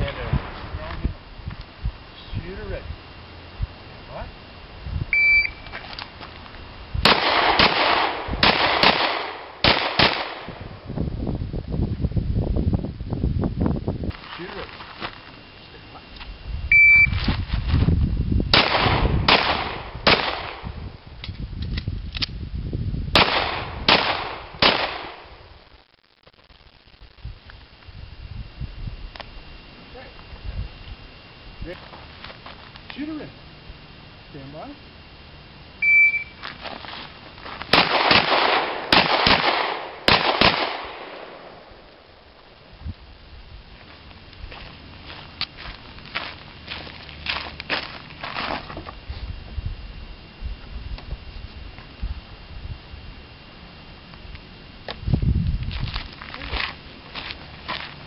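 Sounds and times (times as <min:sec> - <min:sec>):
shot timer beep: 0:05.1 - 0:05.7, 0:16.7 - 0:17.2, 0:35.8 - 0:36.4
pistol shots: 0:07.0 - 0:10.6, 0:18.5 - 0:20.7, 0:23.2 - 0:25.3, 0:37.7 - 0:41.7.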